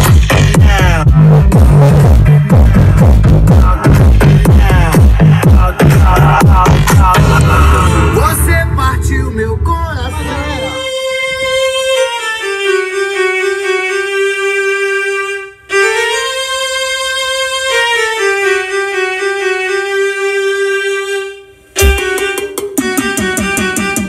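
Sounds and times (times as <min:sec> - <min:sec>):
drum beat: 0:00.0 - 0:11.0, 0:21.8 - 0:24.0
violin-like melody: 0:07.3 - 0:24.0.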